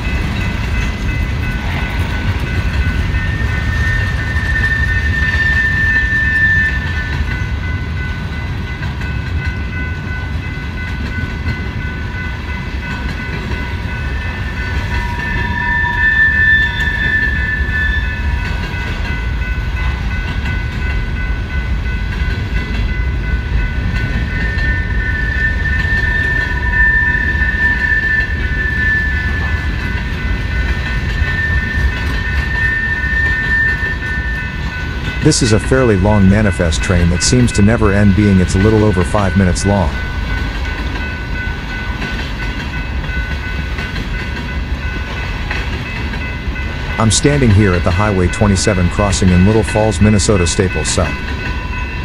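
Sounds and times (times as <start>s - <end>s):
freight train wheels rumbling: 0.0s - 52.0s
high-pitched tones: 31.2s - 40.3s, 47.0s - 52.0s.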